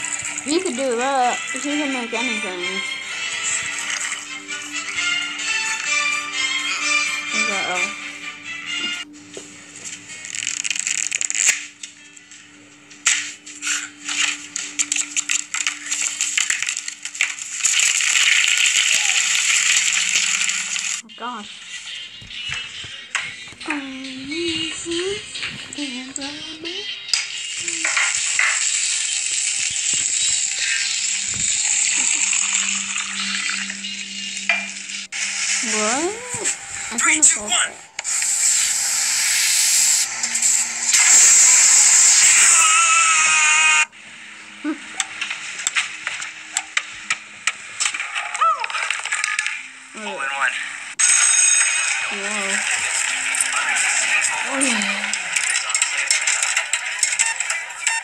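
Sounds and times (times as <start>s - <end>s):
food sizzling in a pan: 13.6s - 21.0s, 27.4s - 37.1s, 38.0s - 43.9s.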